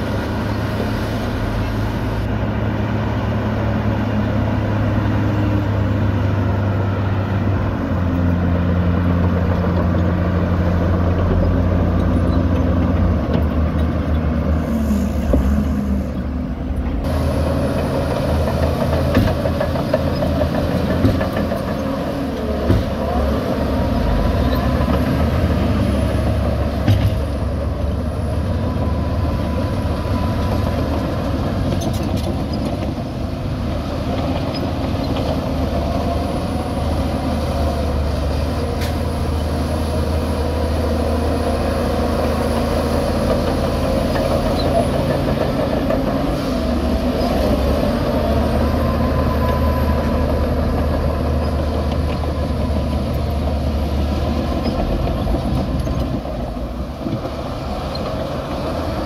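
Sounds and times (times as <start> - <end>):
bulldozer pushing soil: 0.0 - 59.0
heavy diesel engines running: 0.0 - 59.0.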